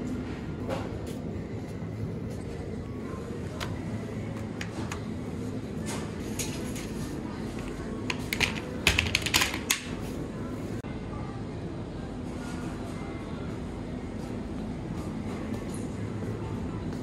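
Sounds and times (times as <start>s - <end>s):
low store hum: 0.0s - 17.0s.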